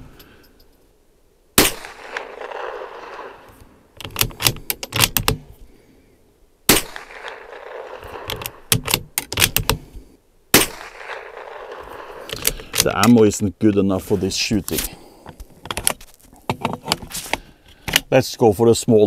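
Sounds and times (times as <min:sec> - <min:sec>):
rifle shots with echo: 0:01.6 - 0:03.5, 0:06.7 - 0:09.6, 0:10.5 - 0:13.0
rifle bolt clicks: 0:04.0 - 0:05.5, 0:08.0 - 0:09.8, 0:12.2 - 0:13.2.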